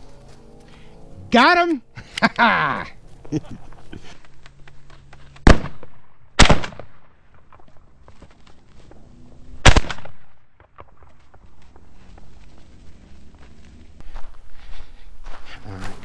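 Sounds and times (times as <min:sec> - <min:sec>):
shotgun shots with echo: 0:05.4 - 0:07.1, 0:09.6 - 0:10.4.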